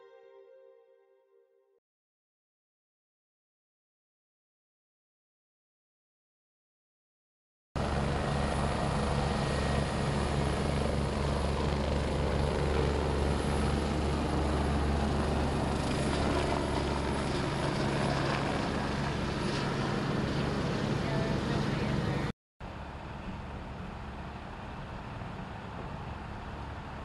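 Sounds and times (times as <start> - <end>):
helicopter rotor: 7.8 - 22.3, 23.0 - 27.0.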